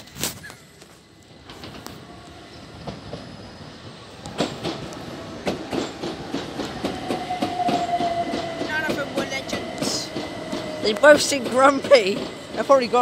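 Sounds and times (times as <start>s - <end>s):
train rumbling into station: 0.0s - 13.0s
train wheels clattering over joints: 4.2s - 13.0s.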